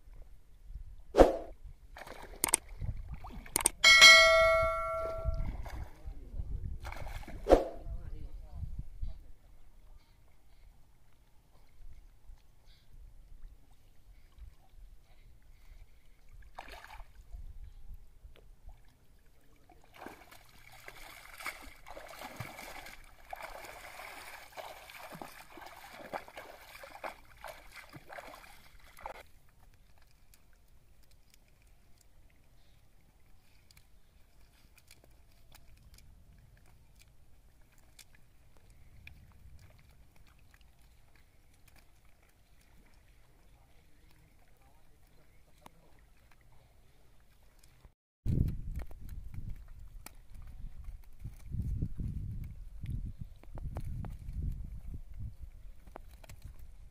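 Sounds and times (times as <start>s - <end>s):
water splashing around wading feet: 1.2s - 6.0s, 6.8s - 7.8s, 16.3s - 17.2s, 18.7s - 32.4s, 33.1s - 44.6s
faint ticks and rustles: 29.0s - 56.9s.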